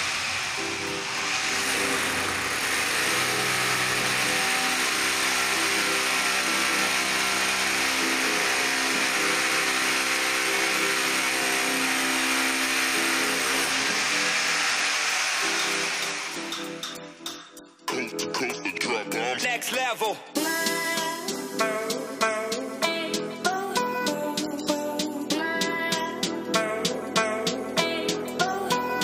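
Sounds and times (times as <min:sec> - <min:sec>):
drill boring into concrete: 0:00.0 - 0:17.0
music playing: 0:00.6 - 0:29.0.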